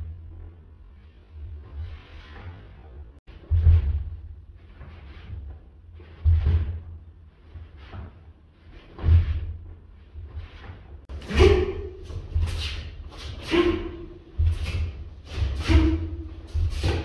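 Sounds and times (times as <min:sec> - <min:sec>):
uniforms swishing: 0:01.0 - 0:17.0
bare feet thudding on floor: 0:14.3 - 0:17.0.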